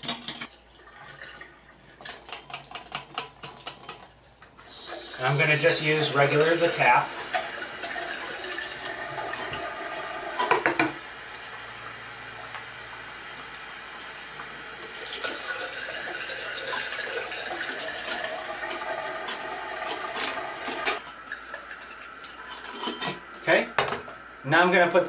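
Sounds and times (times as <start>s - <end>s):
tap water running into sink: 4.7s - 22.4s.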